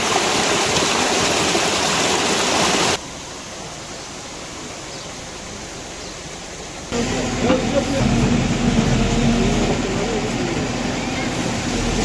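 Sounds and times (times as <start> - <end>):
water running over gravel: 0.0 - 3.0
floodwater rushing: 0.0 - 12.0.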